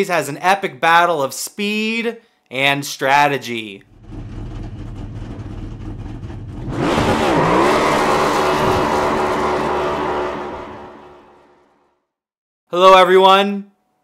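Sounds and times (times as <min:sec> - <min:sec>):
race car engine revving: 0:03.9 - 0:11.7
tire burnout screech: 0:06.1 - 0:11.7.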